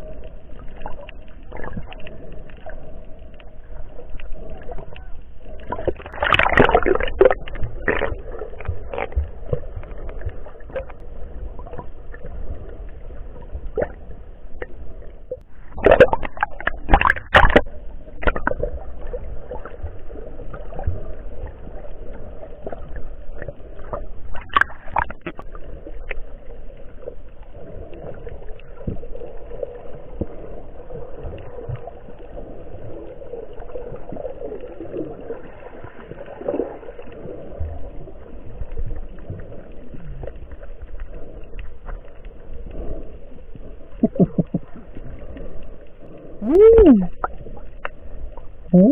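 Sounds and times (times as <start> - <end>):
muffled underwater sloshing: 0.0 - 48.9
sharp knocks and splashes: 5.8 - 8.1, 15.7 - 18.6.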